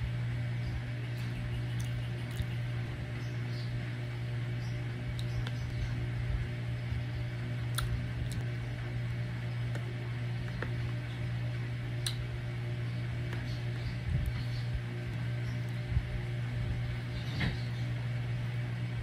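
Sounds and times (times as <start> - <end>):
low hum: 0.0 - 19.0.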